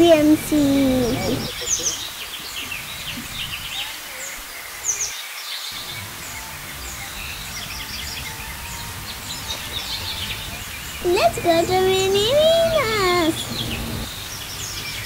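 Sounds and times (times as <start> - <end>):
outdoor background noise: 0.0 - 15.0
small birds chirping: 0.0 - 15.0.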